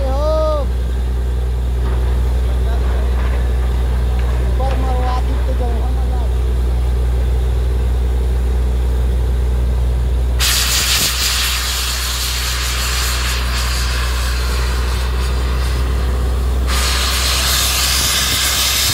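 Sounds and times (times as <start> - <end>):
drilling rig droning: 0.0 - 18.9
compressed air hissing: 10.4 - 18.9.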